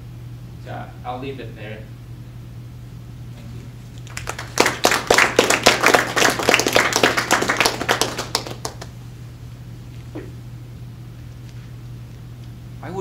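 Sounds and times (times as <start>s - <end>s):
audience applauding: 4.0s - 9.0s.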